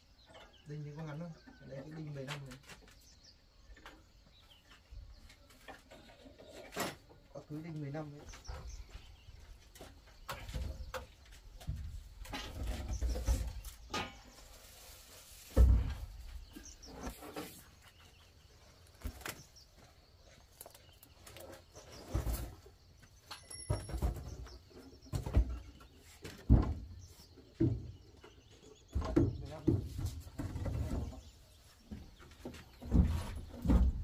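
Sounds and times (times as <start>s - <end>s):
birds chirping: 0.0s - 34.0s
wooden poles knocking: 23.5s - 34.0s.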